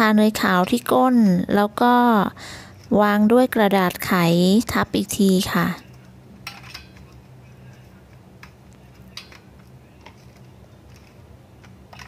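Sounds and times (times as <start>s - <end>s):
low steady hum: 0.0s - 12.0s
paper rustling: 8.8s - 11.3s.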